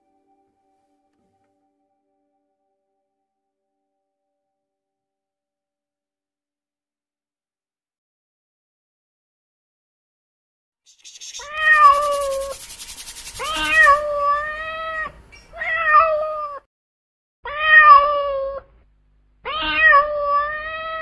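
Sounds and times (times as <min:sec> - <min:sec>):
cat meowing: 0:11.4 - 0:12.1, 0:13.4 - 0:16.6, 0:17.5 - 0:18.7, 0:19.5 - 0:21.0.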